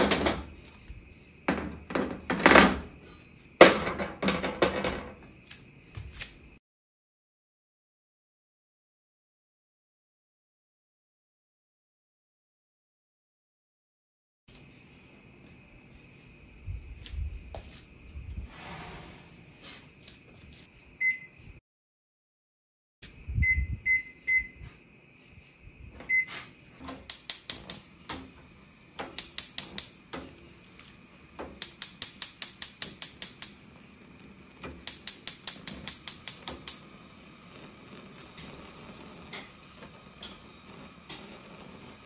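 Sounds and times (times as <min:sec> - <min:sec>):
gas burners hissing: 0:00.0 - 0:05.3, 0:16.2 - 0:20.6, 0:25.6 - 0:42.0
short electronic beeps: 0:21.0 - 0:21.4, 0:23.4 - 0:24.6, 0:26.1 - 0:26.3
gas igniter clicking: 0:26.9 - 0:41.8.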